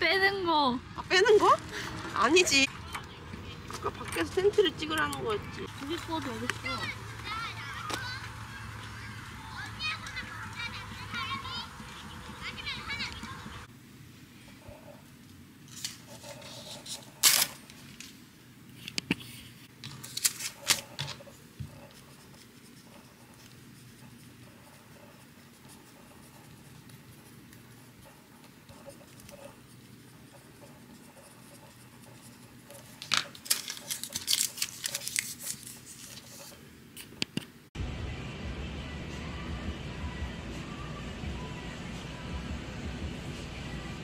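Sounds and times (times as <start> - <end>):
paper folding and crinkling: 5.6 - 9.2, 15.6 - 18.2, 18.8 - 37.1
paper ripping: 15.7 - 17.7, 19.8 - 21.1, 32.7 - 36.6
pencil scratching on paper: 15.8 - 17.2, 20.7 - 33.0, 34.8 - 36.6.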